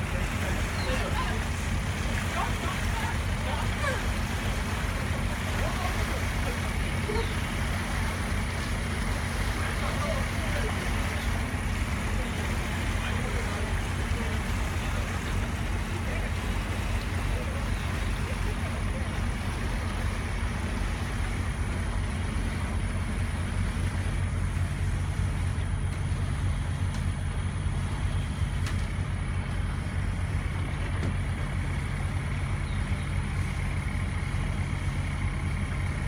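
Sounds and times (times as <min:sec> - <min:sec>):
boat engine droning: 0:00.0 - 0:36.0.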